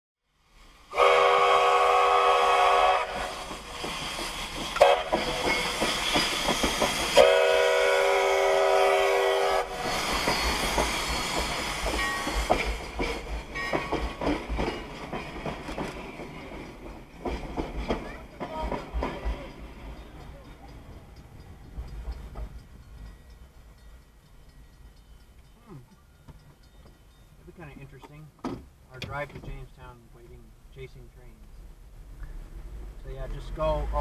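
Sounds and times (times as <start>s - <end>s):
steam whistle blasts: 0.9s - 3.5s, 4.8s - 5.2s, 7.2s - 11.3s
train wheels clattering on rails: 2.9s - 29.9s.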